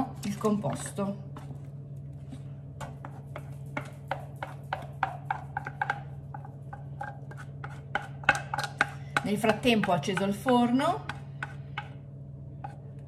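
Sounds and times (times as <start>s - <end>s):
spatula scraping a pot: 2.8s - 12.0s.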